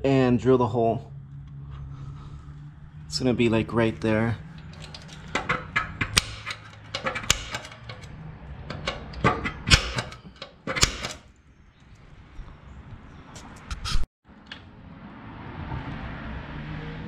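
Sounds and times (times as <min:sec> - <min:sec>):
metal tool tapping on steel: 0:04.6 - 0:11.2.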